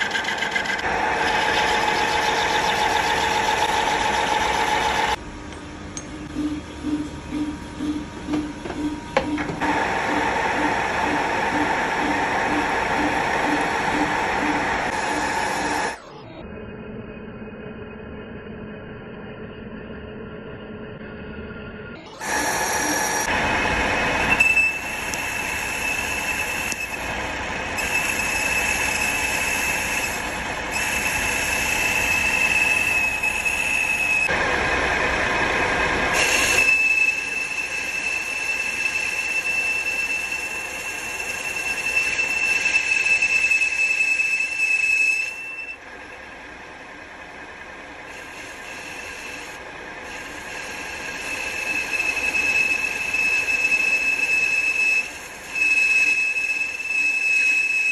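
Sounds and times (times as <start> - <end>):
cutting tool squealing on steel: 0.0 - 5.2, 24.2 - 27.1, 27.8 - 34.3, 36.2 - 45.8, 50.1 - 57.9
metal lathe running: 0.0 - 5.2, 8.6 - 16.0, 22.2 - 57.9.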